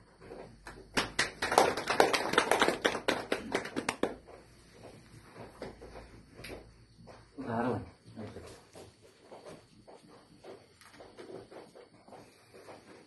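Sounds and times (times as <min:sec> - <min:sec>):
people clapping: 0:00.5 - 0:04.5.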